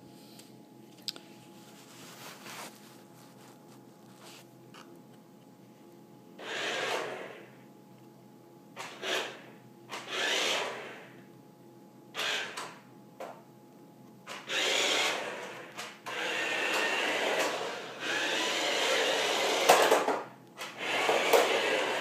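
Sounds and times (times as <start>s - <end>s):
toy car motors whirring: 6.4s - 7.4s, 10.0s - 11.0s, 14.3s - 22.0s.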